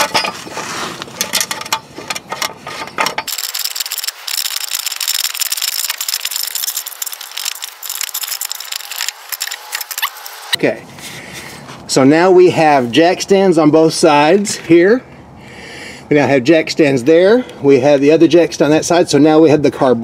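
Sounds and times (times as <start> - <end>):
threads clicking and rattling: 1.2 - 10.5.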